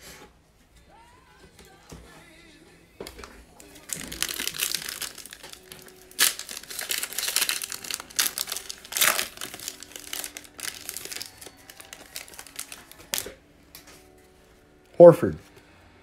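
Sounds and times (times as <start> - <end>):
wrapper crinkling and tearing: 3.6 - 13.9.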